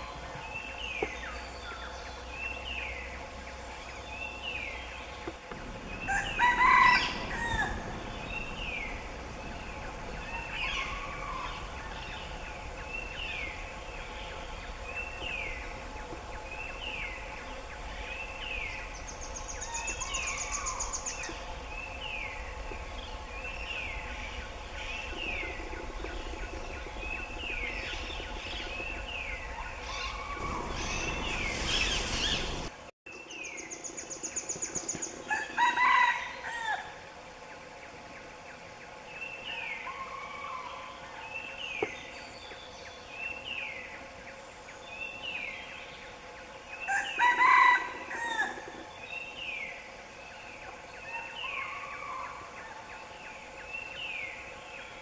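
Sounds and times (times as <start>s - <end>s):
faint steady hum: 0.0s - 55.0s
fowl crowing: 6.0s - 8.0s, 29.8s - 31.3s, 35.3s - 37.0s, 46.9s - 48.8s.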